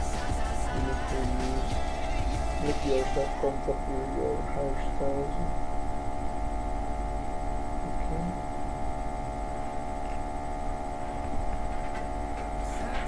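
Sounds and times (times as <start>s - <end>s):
music: 0.0s - 5.0s
steady tonal hum over drone: 0.0s - 13.0s.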